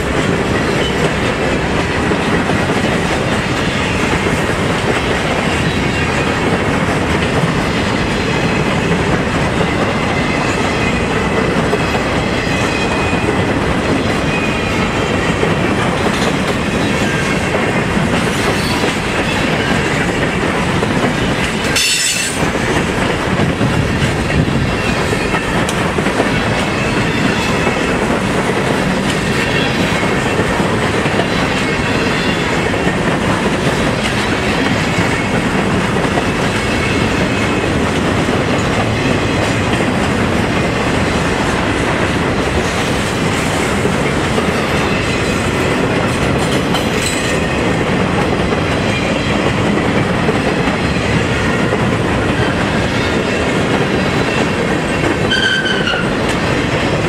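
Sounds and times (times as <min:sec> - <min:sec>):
train wheels rumbling on rails: 0:00.0 - 0:57.0
train wheels squealing: 0:11.8 - 0:13.4, 0:14.2 - 0:15.2, 0:18.3 - 0:20.1, 0:21.2 - 0:22.6, 0:26.6 - 0:28.0, 0:29.2 - 0:30.4, 0:31.2 - 0:32.8, 0:36.5 - 0:37.6, 0:52.4 - 0:56.3.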